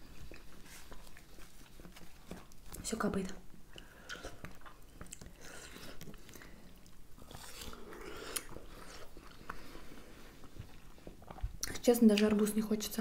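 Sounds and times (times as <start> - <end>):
wet bites and chewing: 3.7 - 9.7.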